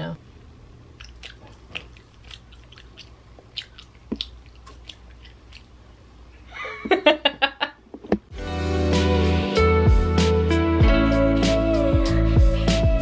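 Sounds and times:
mouth clicks and lip smacks: 1.0 - 5.8
woman laughing: 6.5 - 7.8.

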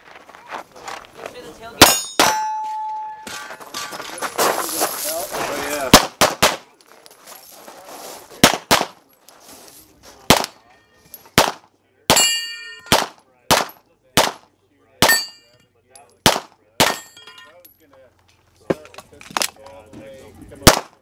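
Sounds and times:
steel targets clanging: 1.8 - 5.2, 12.1 - 13.0, 15.0 - 16.2, 16.8 - 17.8
handgun shots: 11.4 - 14.4, 16.2 - 17.1.

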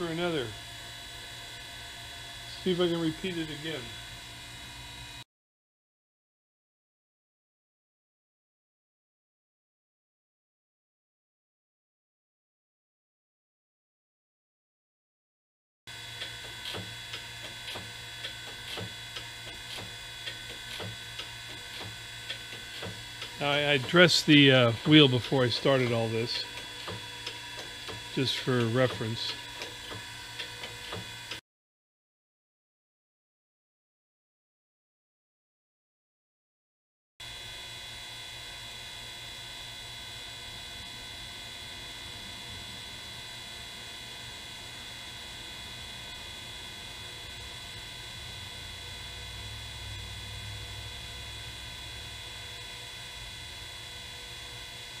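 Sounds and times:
grinder motor hum: 0.0 - 5.2, 15.9 - 31.4, 37.2 - 55.0.

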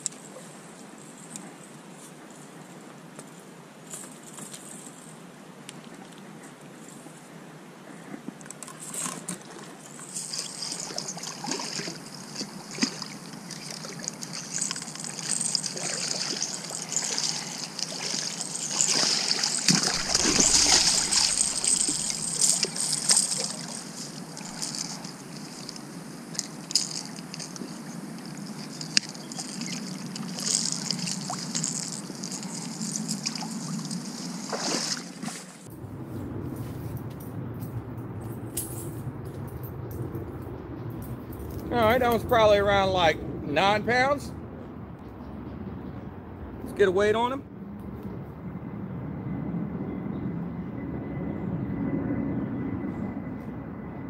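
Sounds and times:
water sloshing and trickling: 8.6 - 35.7.

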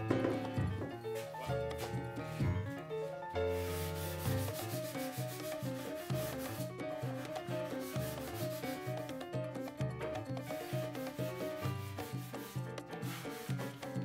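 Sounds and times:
background music with beat: 0.0 - 14.0
sandpaper rubbing on wood: 3.5 - 9.0, 10.4 - 13.9.

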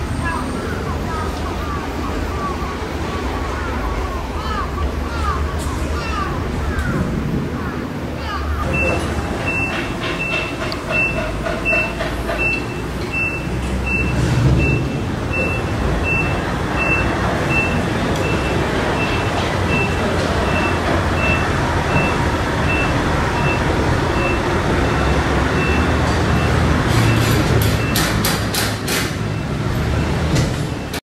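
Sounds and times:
electric train rumbling: 0.0 - 31.0
high electronic warning tone: 8.7 - 28.0.

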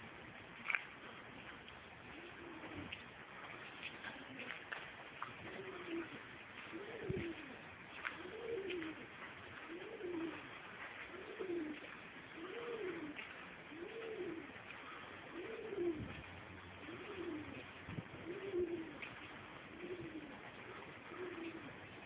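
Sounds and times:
dove cooing: 2.1 - 3.0, 5.4 - 22.0.

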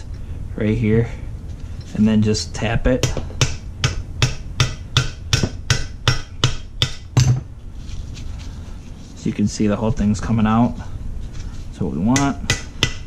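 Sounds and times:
hammer tapping on metal: 3.0 - 7.4, 12.1 - 13.0.

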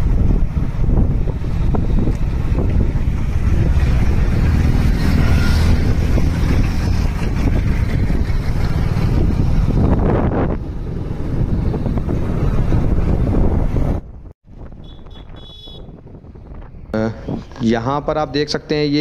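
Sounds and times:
wind buffeting microphone: 0.0 - 18.8.

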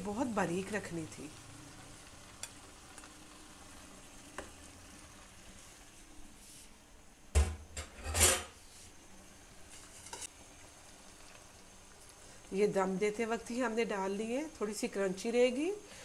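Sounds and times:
faint sizzle: 0.0 - 16.0
spatula stirring in frying pan: 1.8 - 6.7, 9.6 - 10.3.

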